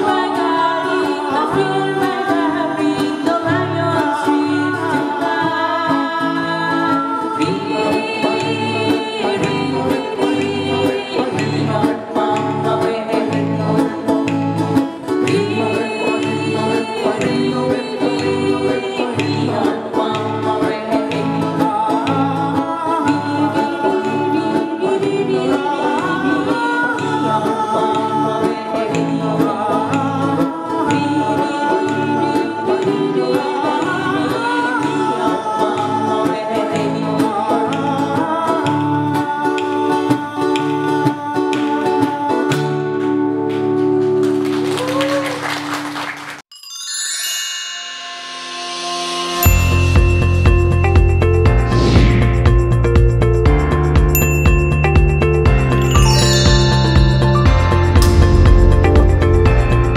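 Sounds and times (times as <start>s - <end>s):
people singing: 0.0s - 43.5s
acoustic guitars strumming: 49.2s - 59.9s.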